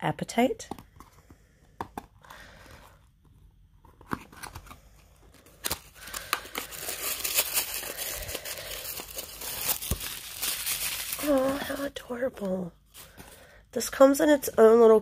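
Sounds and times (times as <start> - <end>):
packaging crinkling: 4.0 - 12.0.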